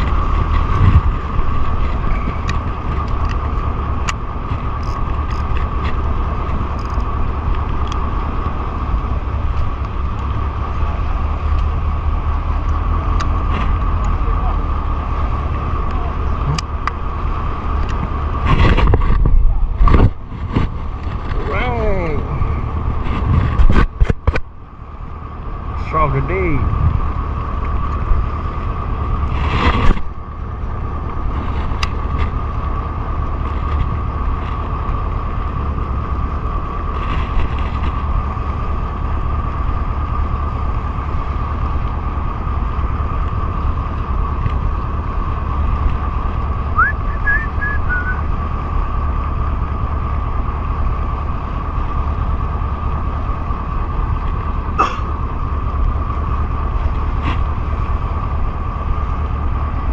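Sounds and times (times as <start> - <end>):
wind on microphone: 0.0 - 7.8
motorboat engine running: 0.0 - 59.9.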